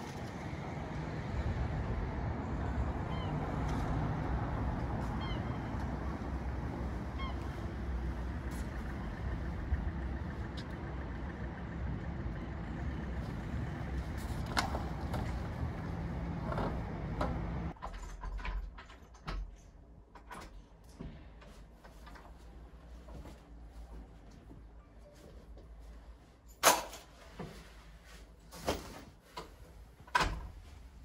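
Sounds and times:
traffic rumble: 0.0 - 17.8.

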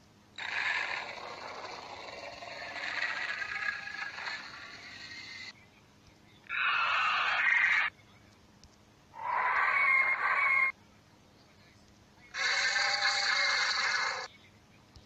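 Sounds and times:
dinosaur call sound effect: 12.3 - 14.3.

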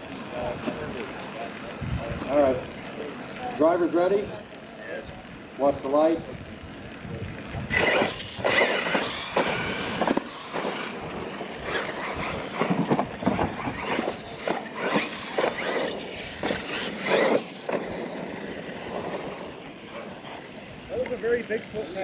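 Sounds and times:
electric motors whining: 0.0 - 22.0
tyres scrabbling on dirt: 7.3 - 22.0
toy trucks clattering on landing: 7.7 - 20.4.

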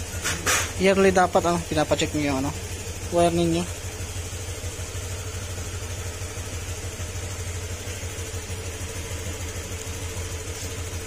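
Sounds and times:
scooter engine idling: 0.0 - 11.0.

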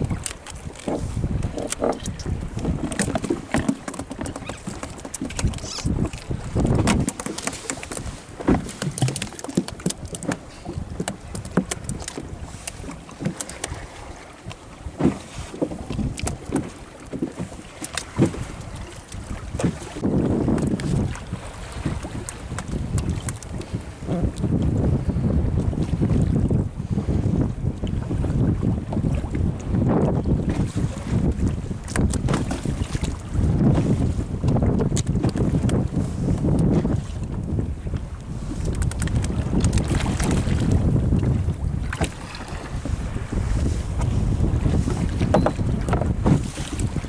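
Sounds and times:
wind and water wash: 0.0 - 47.0
knocks and slaps on boat hull: 0.8 - 13.8, 14.9 - 18.4, 31.2 - 35.8, 45.0 - 46.9.

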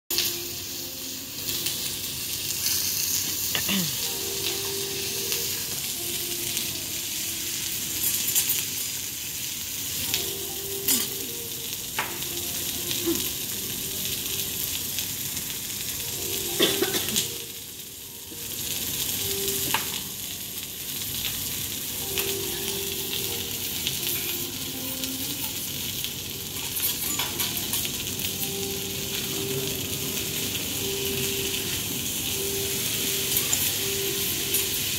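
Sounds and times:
steaks sizzling on a griddle: 0.1 - 34.9.

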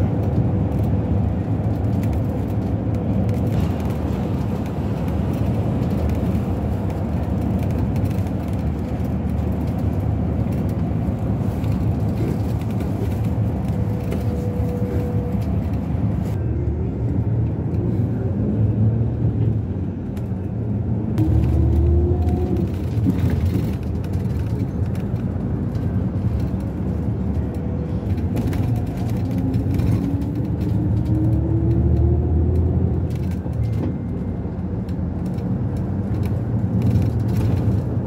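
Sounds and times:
vehicle road and engine rumble: 0.0 - 38.0.

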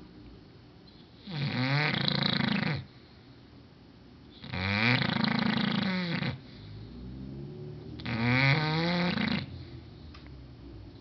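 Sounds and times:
dog snoring: 1.2 - 3.0, 4.3 - 10.1.

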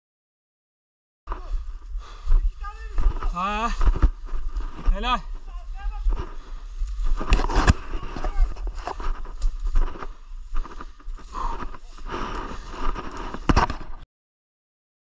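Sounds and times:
twigs crackling: 1.3 - 13.8
footsteps through dry leaves: 1.5 - 13.4.

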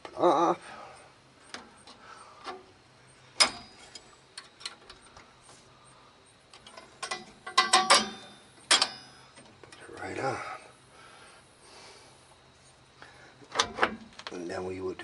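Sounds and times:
metal tool clicks and clinks: 6.5 - 9.1.

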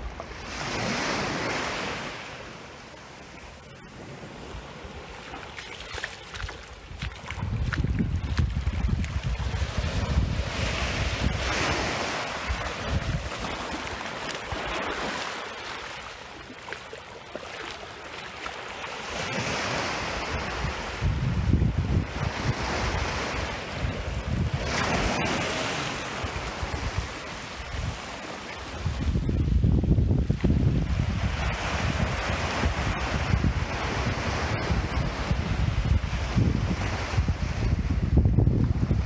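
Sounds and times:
small waves washing on shore: 0.0 - 39.0
wind buffeting microphone: 5.8 - 15.2, 19.1 - 28.1, 28.7 - 39.0.

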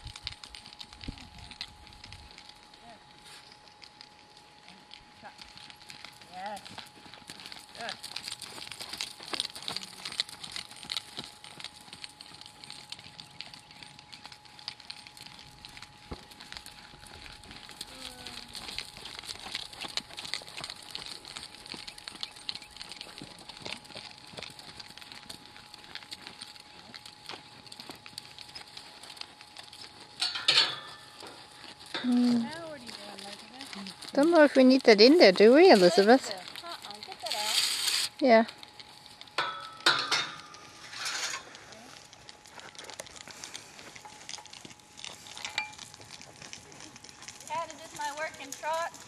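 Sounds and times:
person calling out: 32.0 - 32.6.

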